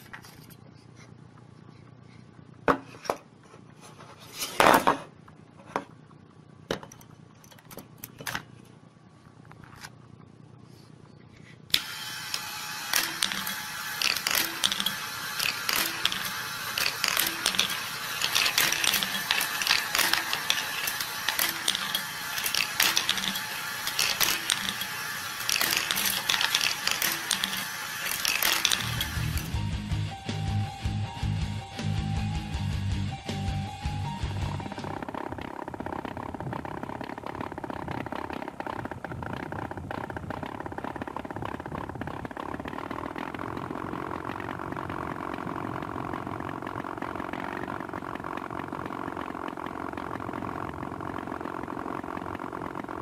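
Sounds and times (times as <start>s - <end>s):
balls rattling through wooden track: 12.9s - 29.5s, 35.0s - 53.0s.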